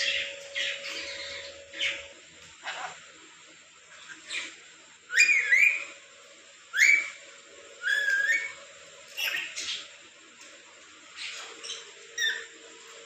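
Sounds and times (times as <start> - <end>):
parrot whistling calls: 5.1 - 5.9, 6.7 - 7.2, 7.8 - 8.6, 11.7 - 12.5.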